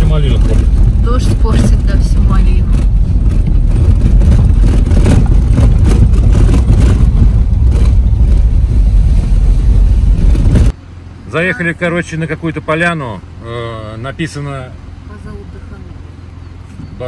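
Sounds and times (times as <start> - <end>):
rain on windscreen: 0.0 - 10.7
suspension knocks: 0.0 - 10.7
tyres rumbling on gravel: 0.0 - 11.5.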